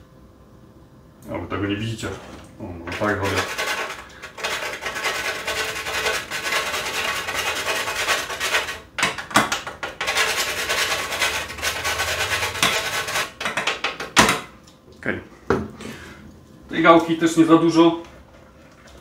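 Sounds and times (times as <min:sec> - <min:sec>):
nutmeg rasping on grater: 0:02.9 - 0:08.9, 0:09.9 - 0:13.4.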